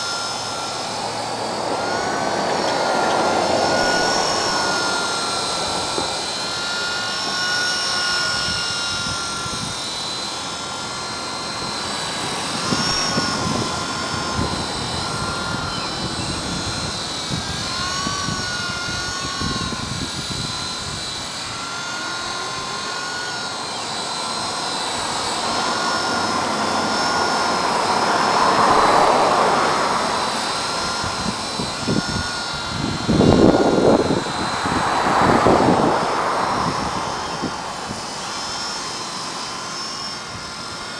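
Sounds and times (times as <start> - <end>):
rc helicopter rotor whine: 0.0 - 40.9
gusts of rushing noise: 27.6 - 32.0.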